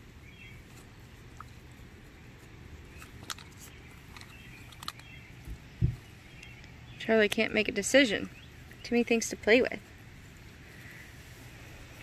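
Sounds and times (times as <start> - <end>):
small sharp clicks: 2.9 - 5.2
wind rumble on microphone: 5.3 - 6.4.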